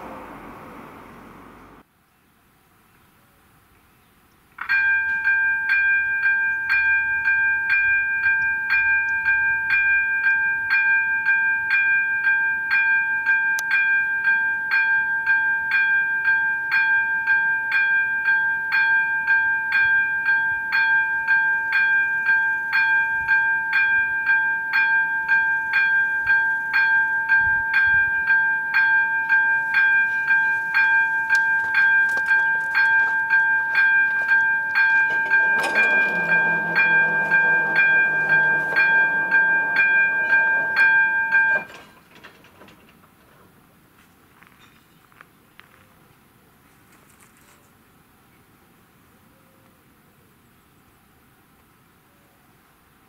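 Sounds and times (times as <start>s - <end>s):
level crossing warning bell: 4.6s - 42.4s.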